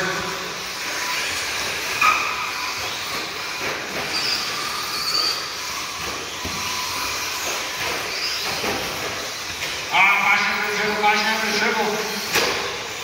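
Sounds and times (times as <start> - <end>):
rc truck motors whining: 0.0 - 13.0.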